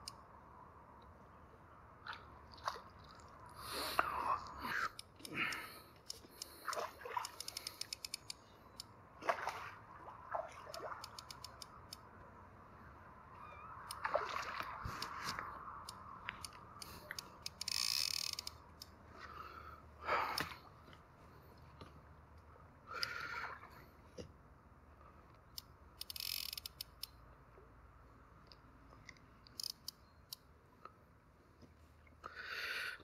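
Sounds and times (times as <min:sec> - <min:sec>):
fish splashing at surface: 0:14.0 - 0:15.2.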